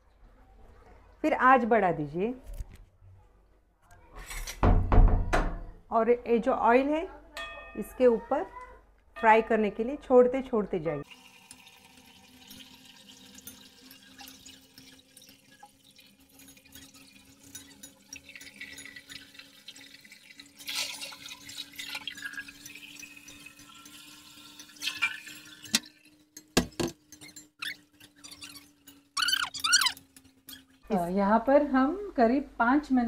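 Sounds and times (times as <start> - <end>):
hot oil sizzling: 11.0 - 30.9.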